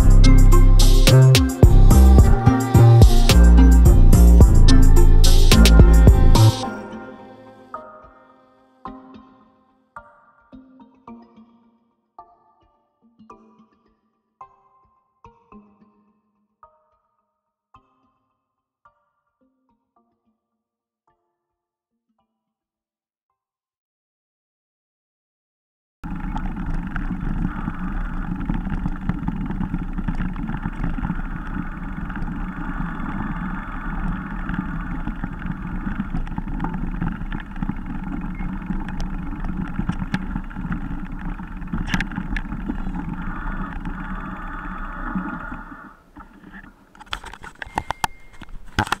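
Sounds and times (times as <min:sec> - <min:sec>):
bike rattling over ground: 0:26.1 - 0:44.5.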